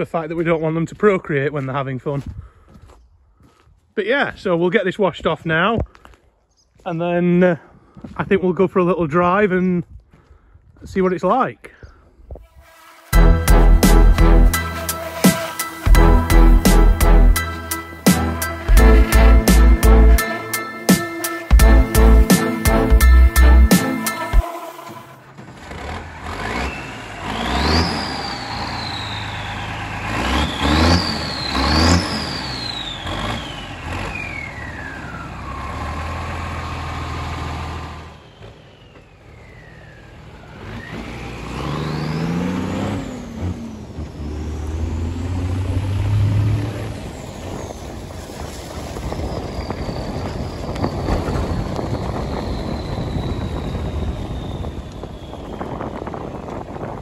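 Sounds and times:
army truck engine revving: 12.8 - 57.0.

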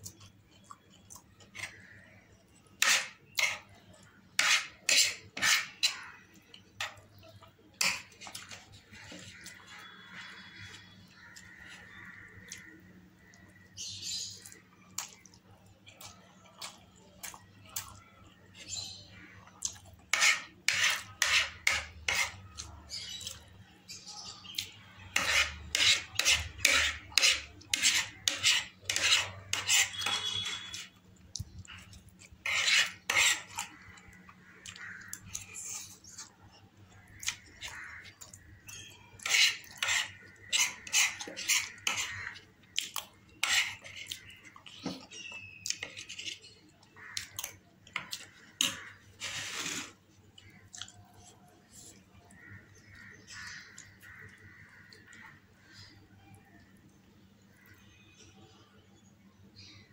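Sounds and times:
cutlery scraping on a plate: 2.8 - 6.2, 7.8 - 9.5, 20.1 - 23.2, 25.1 - 31.0, 31.8 - 33.9, 38.7 - 46.6, 47.9 - 50.0.

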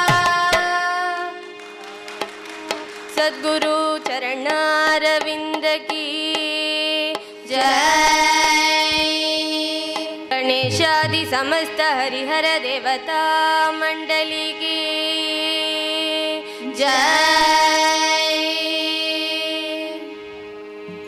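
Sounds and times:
girls singing together: 0.0 - 1.4, 3.1 - 20.0
steady drone: 0.0 - 21.0.

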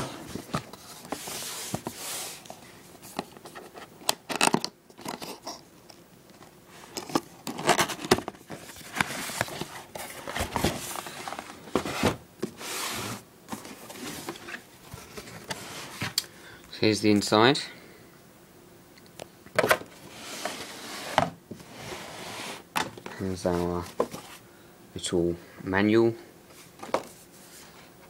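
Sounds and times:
cardboard rubbing and scraping: 0.0 - 2.4, 7.5 - 16.2, 20.0 - 24.4.

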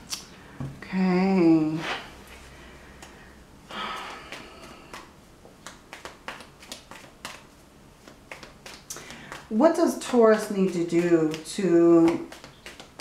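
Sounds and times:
cards being shuffled: 4.0 - 13.0.

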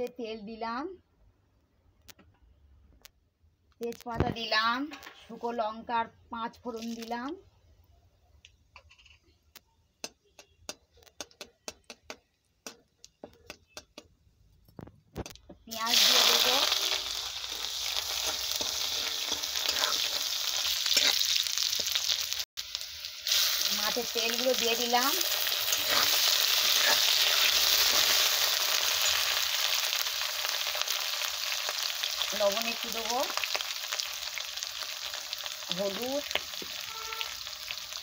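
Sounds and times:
spice seeds popping in hot oil: 8.5 - 38.0.

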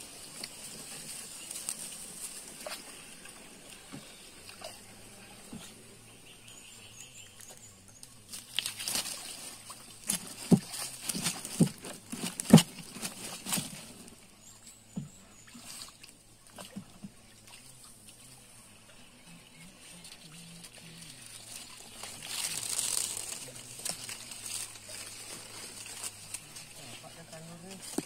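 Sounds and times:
leaves and twigs rustling: 0.0 - 28.0
water sloshing around canoe: 7.1 - 28.0.

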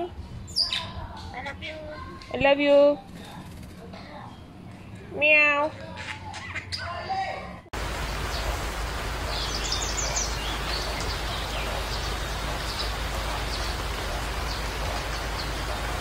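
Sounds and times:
small birds chirping: 7.8 - 16.0
steady hiss: 7.8 - 16.0.

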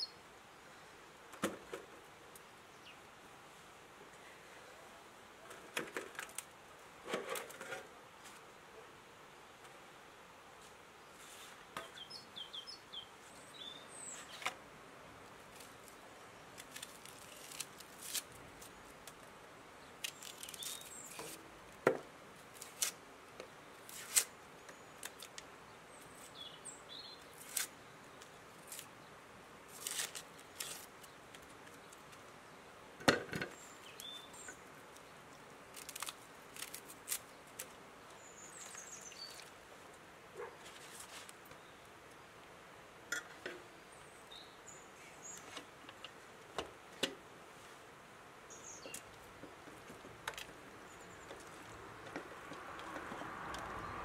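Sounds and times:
faint bird chirps: 0.0 - 0.8
knife peeling onion skin: 16.6 - 18.8, 22.6 - 23.0, 23.9 - 24.3, 27.4 - 27.7, 29.7 - 30.9, 35.7 - 37.7.

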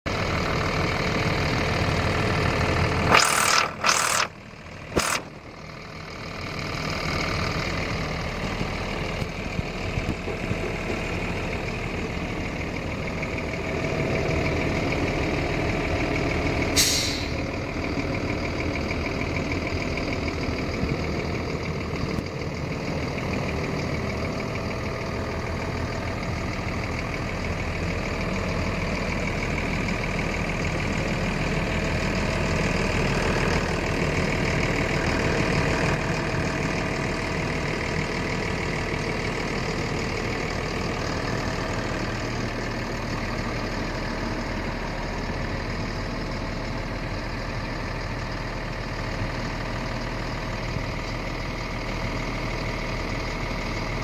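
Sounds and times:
diesel truck engine idling: 0.1 - 54.0
air hissing: 16.8 - 17.4.

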